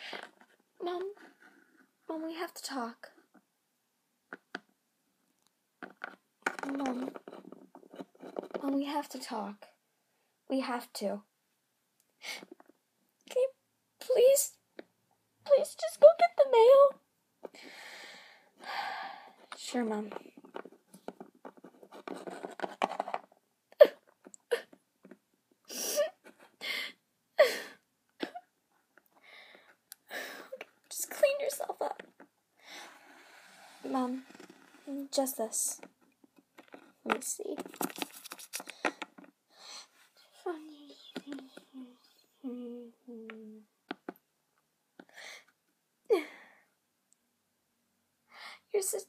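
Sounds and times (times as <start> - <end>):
breathy puffs: 17.5 - 19.5
plastic toy clicking and rustling: 36.5 - 39.3
girl humming: 40.2 - 43.7.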